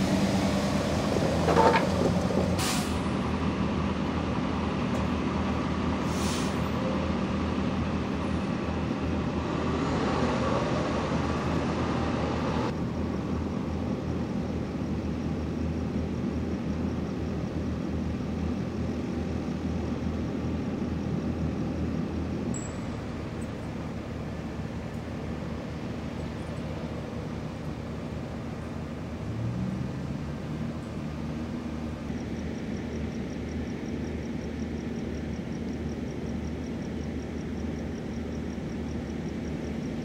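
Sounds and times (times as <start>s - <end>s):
vehicle engines idling: 0.0s - 40.0s
short air hisses: 2.6s - 3.1s, 6.0s - 6.7s.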